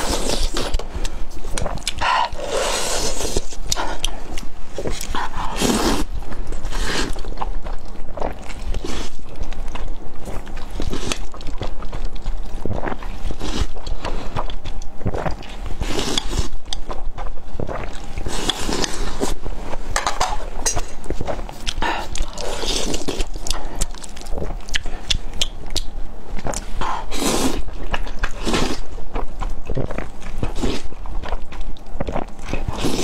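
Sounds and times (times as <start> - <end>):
slurping and chewing noodles: 0.0 - 33.0
sharp mouth clicks: 24.6 - 26.7.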